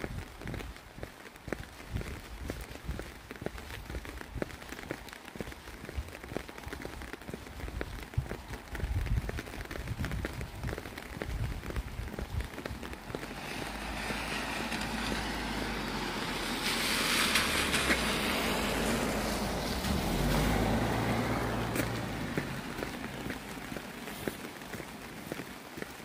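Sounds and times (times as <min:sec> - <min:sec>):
tyre hiss on wet road: 0:00.4 - 0:26.0
low engine rumble: 0:12.9 - 0:24.7.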